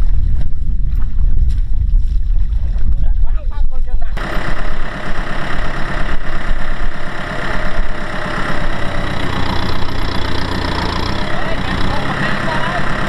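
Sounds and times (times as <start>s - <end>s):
tractor diesel engine running: 4.1s - 13.0s.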